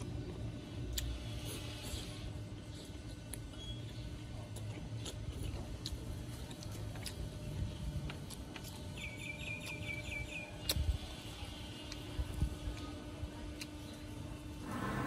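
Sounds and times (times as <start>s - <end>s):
chewing: 0.9s - 11.0s
low steady rumble: 10.9s - 15.0s.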